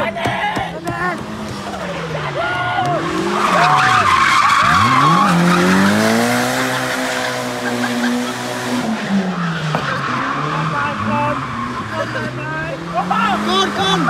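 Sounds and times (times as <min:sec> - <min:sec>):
car engine revving: 0:00.7 - 0:14.0
tyre squeal: 0:03.3 - 0:08.2.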